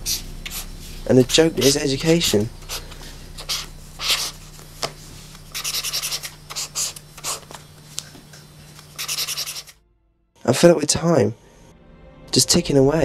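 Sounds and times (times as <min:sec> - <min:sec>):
pen scratching on paper: 0:00.0 - 0:07.6, 0:08.8 - 0:09.8
faint steady hum: 0:00.0 - 0:13.0.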